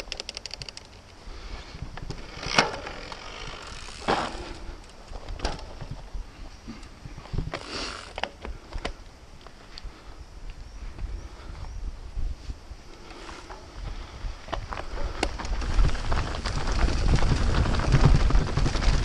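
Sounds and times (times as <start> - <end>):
bike rattling with sharp knocks: 2.1 - 6.0, 14.7 - 19.0.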